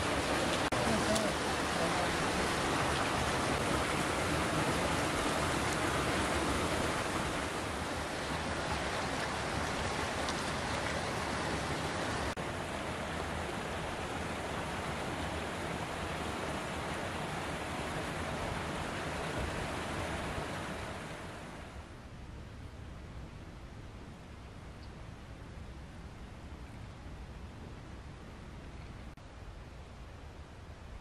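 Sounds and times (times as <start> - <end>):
rush of flowing water: 0.0 - 22.2.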